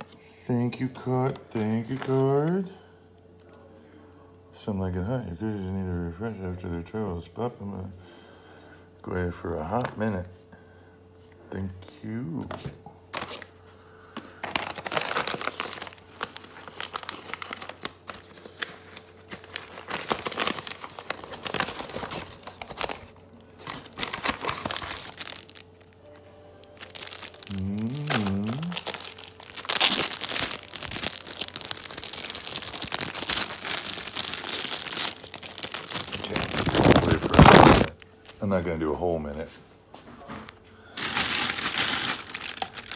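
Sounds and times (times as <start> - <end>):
plastic and paper crinkling: 1.7 - 2.7, 12.4 - 38.1, 41.0 - 42.9.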